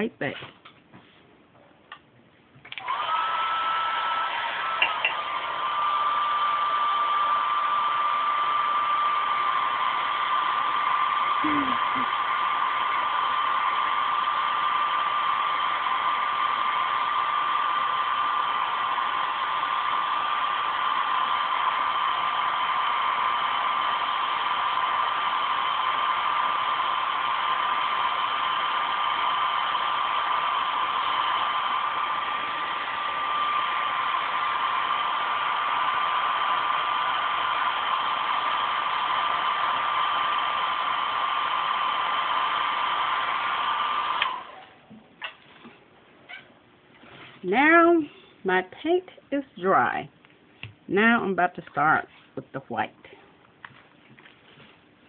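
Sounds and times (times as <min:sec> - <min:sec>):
heat gun blowing with high whine: 0:02.7 - 0:44.9.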